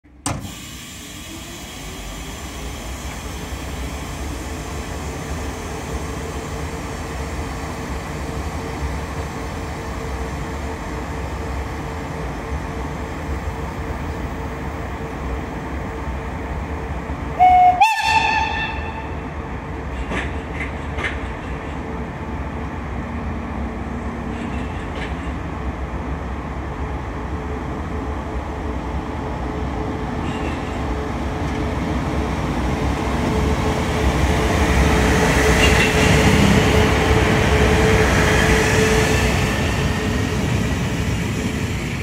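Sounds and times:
electric locomotive humming: 0.0 - 42.0
two-tone locomotive horn blast: 17.4 - 19.2.

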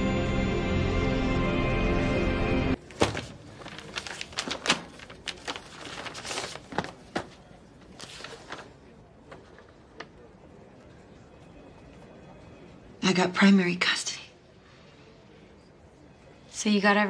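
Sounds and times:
papers and folder rustling: 2.8 - 10.1.

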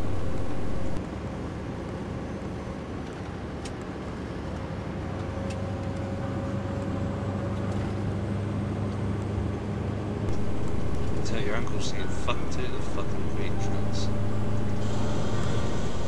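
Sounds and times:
diesel truck engine drone: 0.0 - 16.0.

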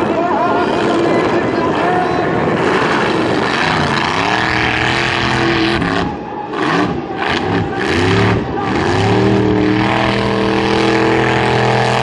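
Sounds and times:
buggy engine revving hard: 2.6 - 12.0.

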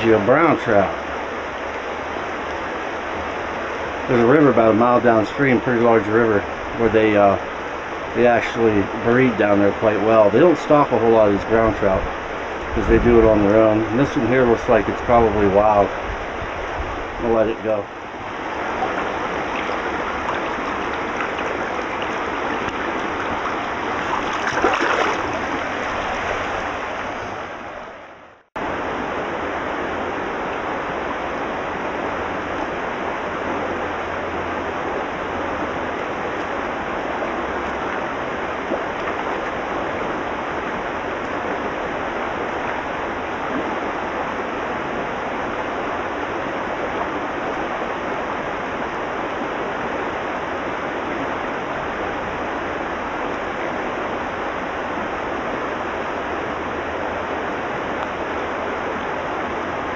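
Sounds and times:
creek gurgling over stones: 0.0 - 27.6, 31.8 - 59.9
splash in water: 18.5 - 26.9.

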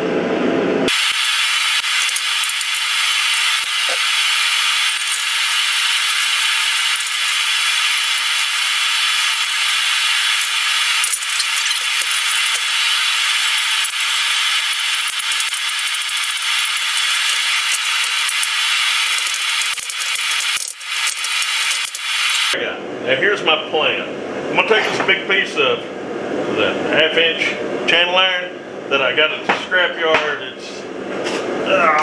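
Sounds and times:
metal parts clinking and rattling: 2.0 - 22.4.

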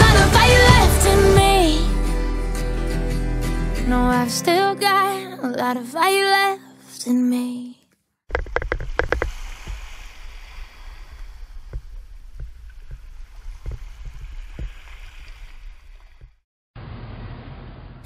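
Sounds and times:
small waves washing on sand: 9.1 - 12.4.

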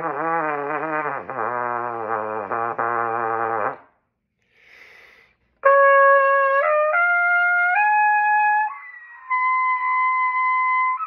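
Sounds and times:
trumpet playing: 0.0 - 3.9, 5.6 - 11.0
breath of air: 4.4 - 5.6.

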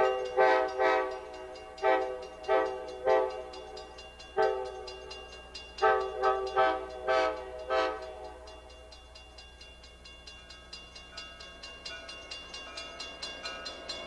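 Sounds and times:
train air horn blasts: 0.0 - 3.6, 4.4 - 4.9, 5.8 - 8.5
crossing warning bell: 0.0 - 14.0.

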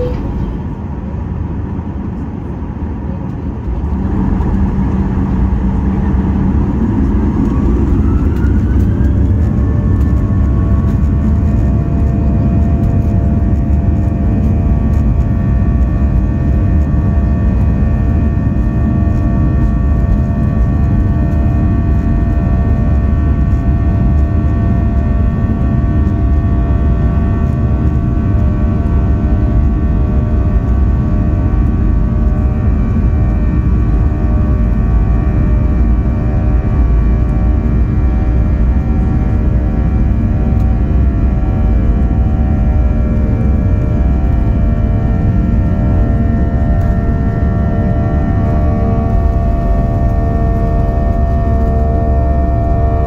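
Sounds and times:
jet engines whining: 0.0 - 13.1, 36.6 - 53.0
heavy rumble of plane rolling: 0.0 - 53.0.

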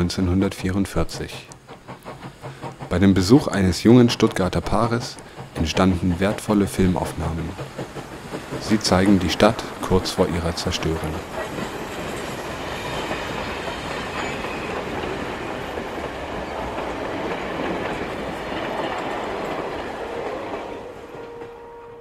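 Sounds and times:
train wheels rumbling on track: 0.0 - 22.0.

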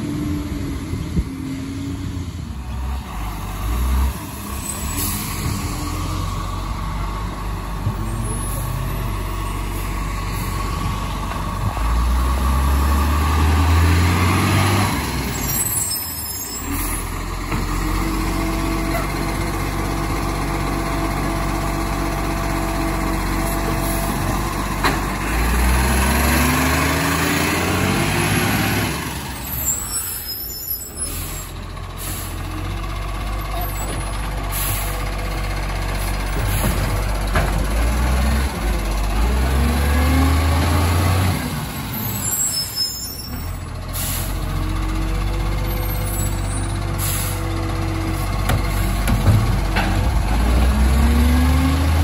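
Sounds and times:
garbage truck engine revving: 0.0 - 30.3, 31.0 - 52.0
air-brake hiss: 47.0 - 47.4.

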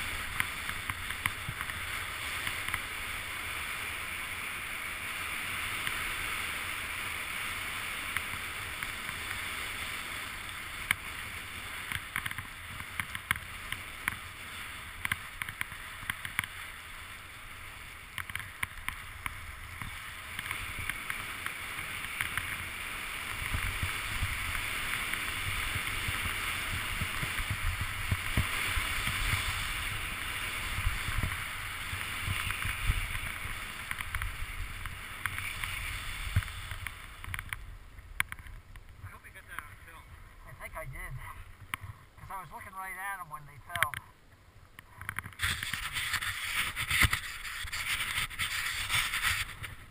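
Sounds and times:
skis sliding over snow: 0.0 - 44.0, 44.8 - 49.9
wind rumbling on microphone: 0.0 - 49.9.

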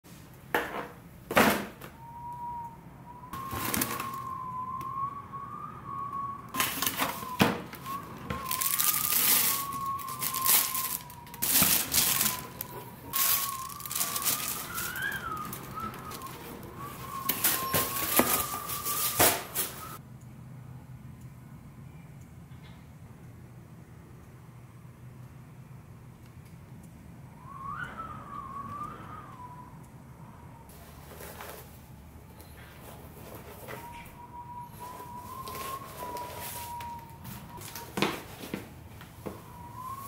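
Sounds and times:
thin wavering high tone: 2.2 - 20.0, 27.4 - 30.7, 33.6 - 37.8
tissue paper crinkling: 6.6 - 20.0.

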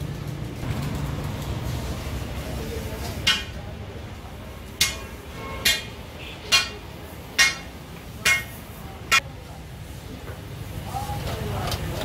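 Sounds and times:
hammer striking metal: 3.2 - 3.6, 4.8 - 9.3.

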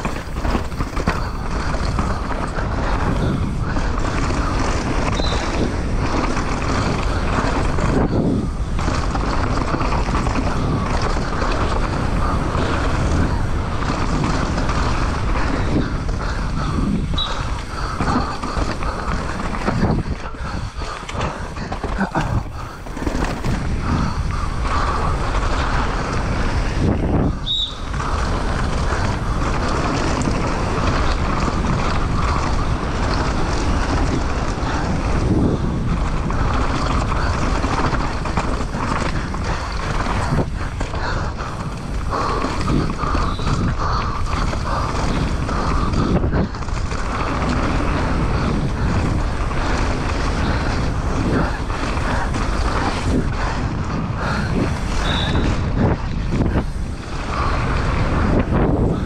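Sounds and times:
bike rattling: 0.0 - 59.0
tyres running over dirt: 0.0 - 59.0
wind rushing on microphone: 0.0 - 59.0.

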